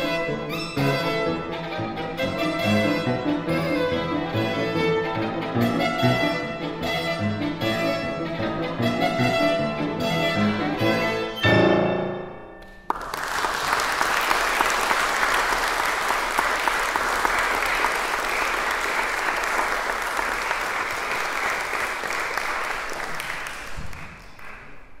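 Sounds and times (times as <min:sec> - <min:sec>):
audience applause: 0:12.8 - 0:24.9.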